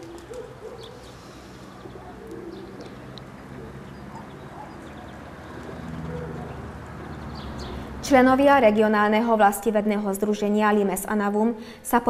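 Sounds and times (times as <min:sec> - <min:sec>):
pigeons cooing: 0:00.0 - 0:08.0
small birds chirping: 0:00.0 - 0:08.0.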